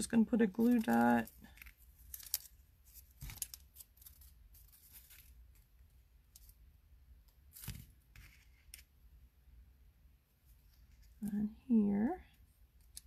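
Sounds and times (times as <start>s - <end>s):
paper rustling: 0.4s - 5.7s.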